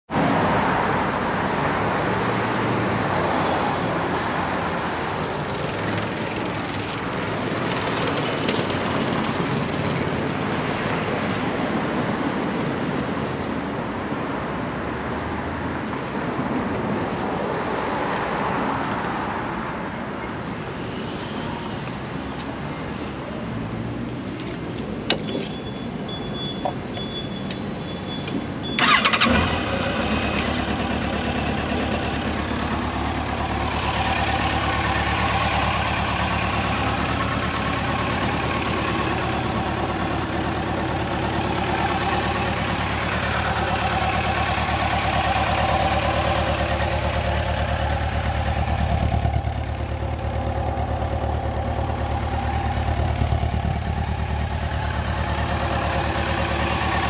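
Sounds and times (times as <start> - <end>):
passing cars: 0.1 - 57.0
click: 26.6 - 27.6.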